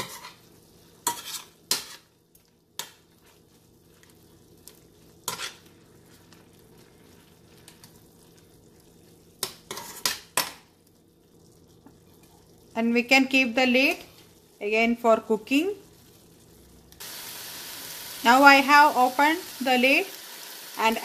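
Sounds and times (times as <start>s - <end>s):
spoon scraping a steel pan: 0.0s - 0.4s, 1.0s - 2.0s, 5.3s - 5.6s
faint sizzle: 0.0s - 21.0s.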